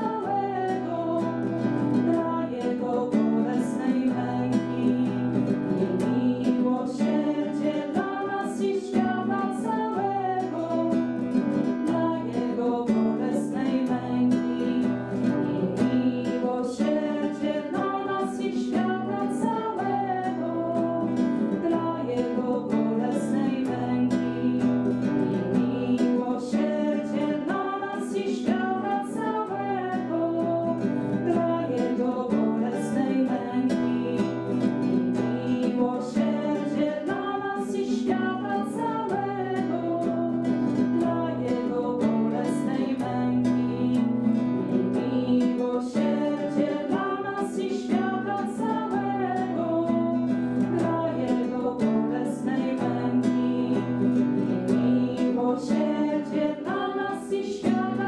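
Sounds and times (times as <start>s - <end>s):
acoustic guitar: 0.0s - 58.0s
women singing a hymn: 0.0s - 58.0s.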